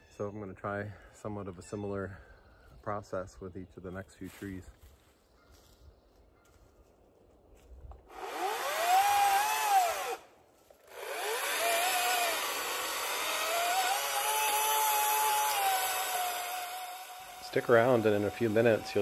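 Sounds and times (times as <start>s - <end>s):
electric chainsaw whining: 8.1s - 10.2s, 10.9s - 19.0s
chainsaw cutting wood: 8.1s - 19.0s.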